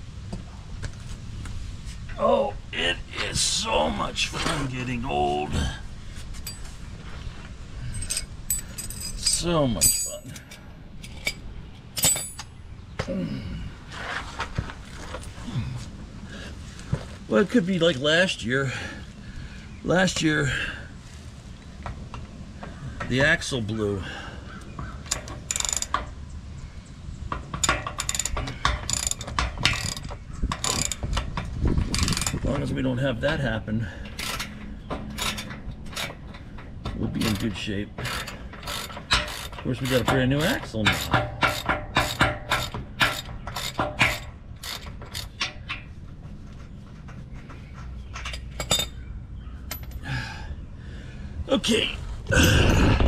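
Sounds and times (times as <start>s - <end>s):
socket ratchet clicking: 25.1s - 26.0s, 27.6s - 31.3s, 31.9s - 32.4s, 37.3s - 40.1s.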